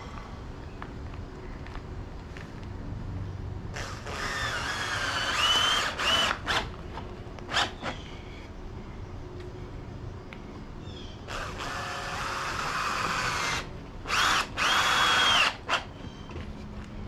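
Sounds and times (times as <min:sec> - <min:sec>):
power drill into wood: 0:03.8 - 0:06.7, 0:11.3 - 0:15.9.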